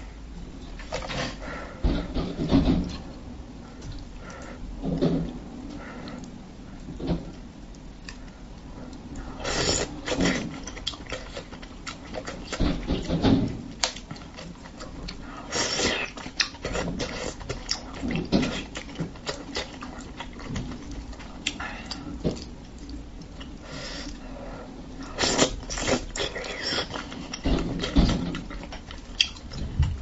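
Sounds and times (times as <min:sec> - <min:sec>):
wet slurping and chewing: 0:09.2 - 0:12.6, 0:13.8 - 0:24.2, 0:25.0 - 0:29.6.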